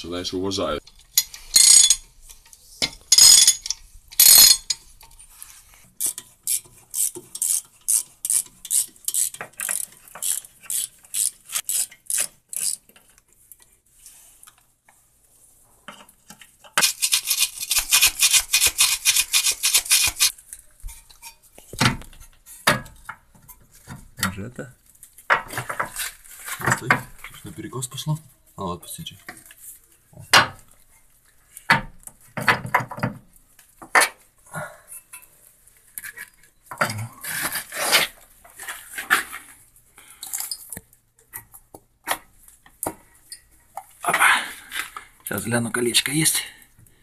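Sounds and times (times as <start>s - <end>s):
ratchet wrench clicking: 6.0s - 12.8s.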